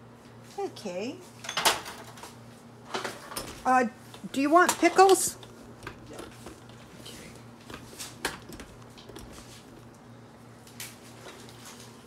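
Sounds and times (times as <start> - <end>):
steady low hum: 2.2 - 12.0
faint clicks and knocks: 3.4 - 10.0.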